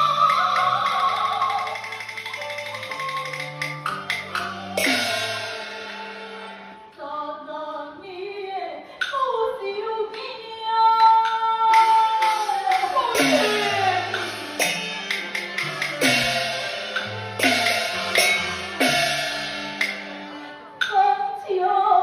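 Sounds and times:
opera singing: 0.0s - 2.9s, 6.9s - 14.3s, 20.9s - 22.0s
percussion strikes: 0.0s - 6.8s, 10.9s - 21.0s.

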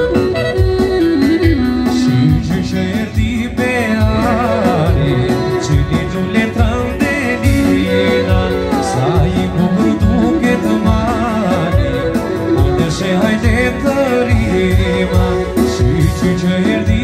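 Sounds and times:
clarinet playing ornamented melody: 0.0s - 2.5s, 7.4s - 16.3s
folk band accompaniment with low beat: 0.0s - 17.0s.

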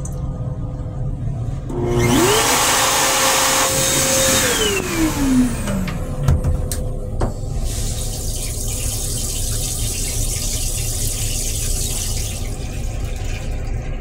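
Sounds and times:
toilet flushing hiss: 7.4s - 14.0s.

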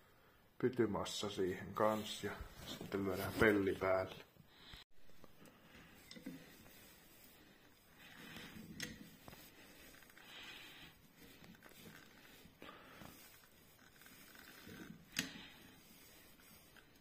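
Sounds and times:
caulking gun squishing and creaking: 7.6s - 15.6s.

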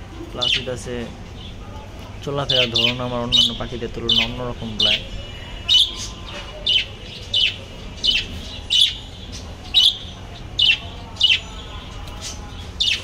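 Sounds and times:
budgerigars chirping: 0.4s - 1.6s, 2.3s - 13.0s.

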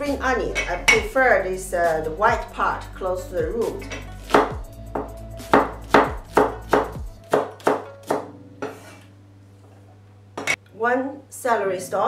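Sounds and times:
cleaver chopping on wooden board: 4.3s - 8.8s.

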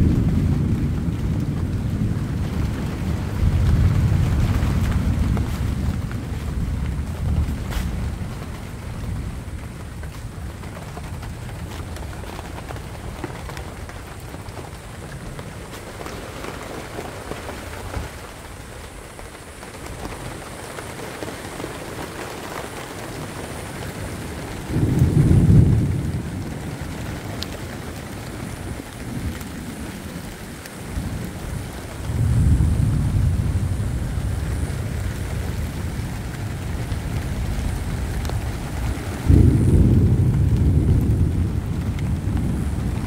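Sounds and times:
low rumbles of thunder: 0.0s - 43.0s
steady rain: 0.0s - 43.0s.

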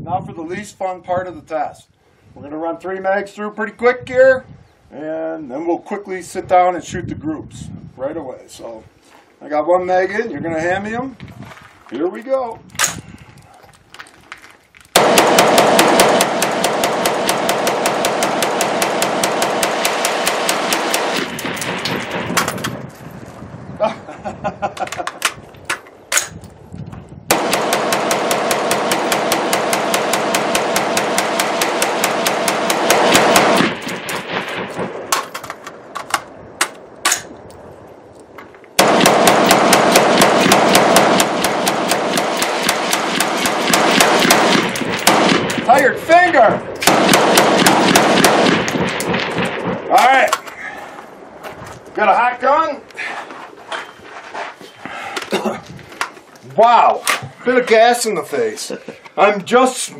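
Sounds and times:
rifle firing rapid shots: 15.0s - 22.6s, 27.3s - 35.2s, 38.8s - 46.0s, 46.8s - 50.2s
single rifle cracks: 33.1s - 37.4s.

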